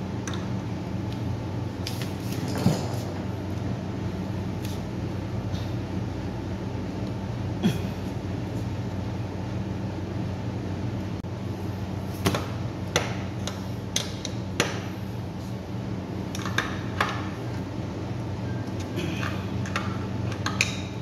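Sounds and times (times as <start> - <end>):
steady low hum: 0.0 - 21.0.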